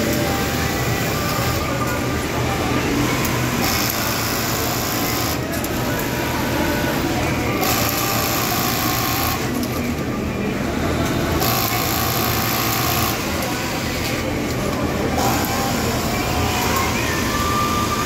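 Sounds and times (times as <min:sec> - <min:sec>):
factory floor hum: 0:00.0 - 0:18.0.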